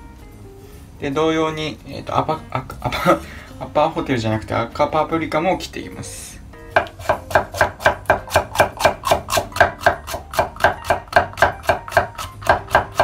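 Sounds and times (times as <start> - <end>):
knife slicing pepper on wooden board: 6.8 - 13.0.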